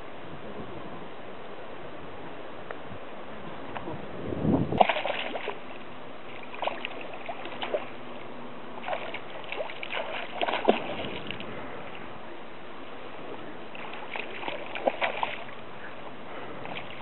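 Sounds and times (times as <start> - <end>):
fish splashing at water surface: 4.8 - 5.7, 6.3 - 8.0, 8.8 - 11.5, 13.7 - 15.6.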